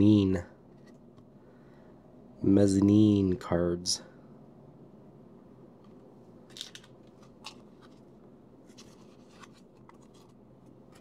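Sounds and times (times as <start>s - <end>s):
faint background hum: 0.0s - 11.0s
cards shuffling: 5.8s - 11.0s.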